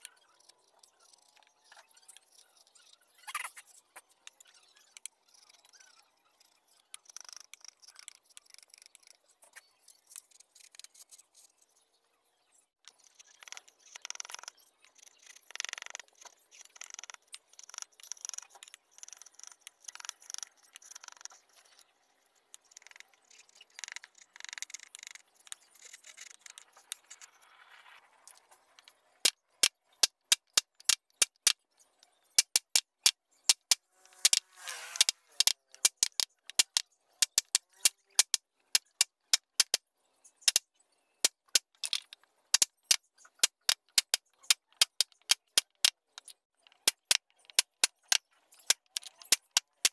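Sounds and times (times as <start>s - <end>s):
chisel scraping wood: 34.0s - 35.5s.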